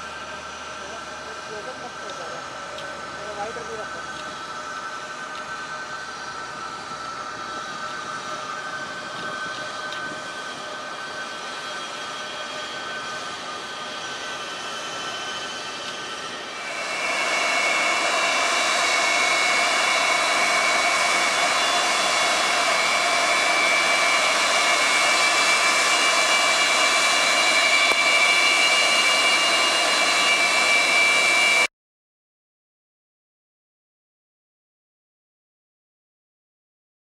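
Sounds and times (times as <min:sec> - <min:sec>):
helicopter turbine whine: 0:00.0 - 0:31.7
rushing noise: 0:15.6 - 0:31.7.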